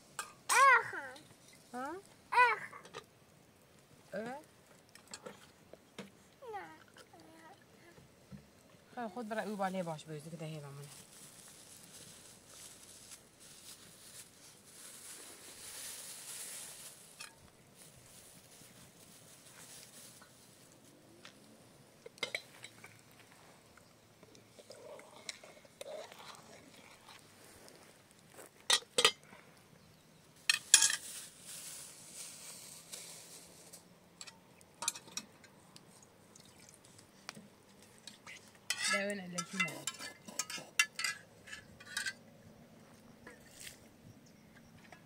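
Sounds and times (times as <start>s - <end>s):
pots and utensils clinking: 0.2s - 0.6s, 22.0s - 22.9s, 28.6s - 29.2s, 30.5s - 31.1s, 34.2s - 35.5s, 38.0s - 42.2s.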